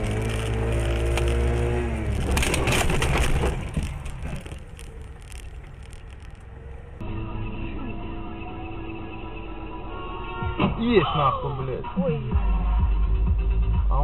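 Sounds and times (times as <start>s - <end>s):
clicks and rattles: 0.0s - 6.6s
crunching collision: 0.0s - 7.0s
car engine revving: 0.0s - 13.8s.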